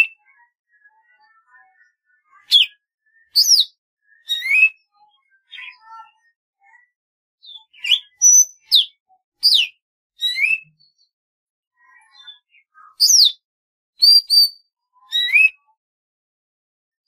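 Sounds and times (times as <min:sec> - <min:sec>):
bird whistled song: 0:01.0 - 0:06.3, 0:07.4 - 0:11.1, 0:12.0 - 0:13.4, 0:14.0 - 0:15.7.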